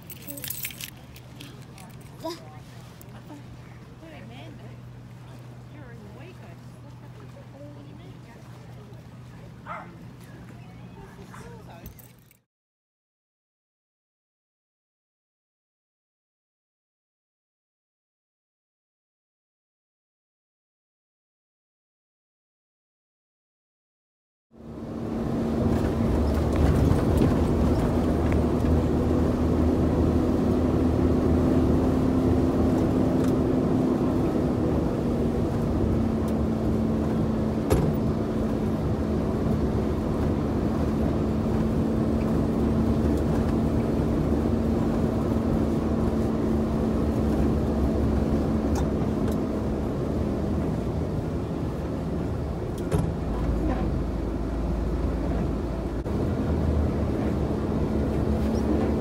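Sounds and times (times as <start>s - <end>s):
truck engine drone: 0.0s - 12.4s, 24.5s - 59.0s
tyre noise on wet road: 25.1s - 59.0s.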